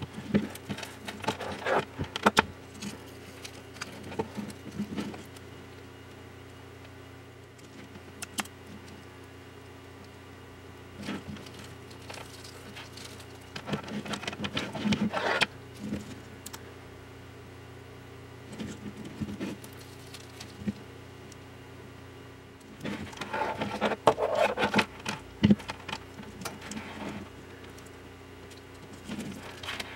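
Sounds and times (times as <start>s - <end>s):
handling taps and rustles: 0.0s - 5.4s, 11.0s - 16.6s, 22.7s - 29.9s
steady low hum: 0.0s - 29.9s
backing liner crinkling: 10.9s - 16.7s, 22.6s - 29.9s.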